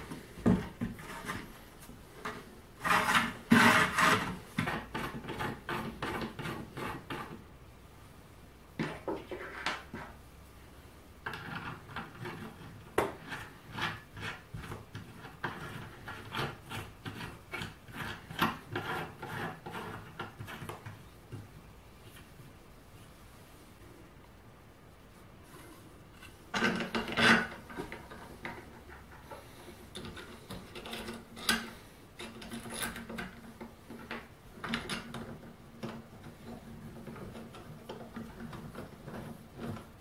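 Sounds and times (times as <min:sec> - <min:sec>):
plywood parts rubbing together: 0:00.0 - 0:07.4.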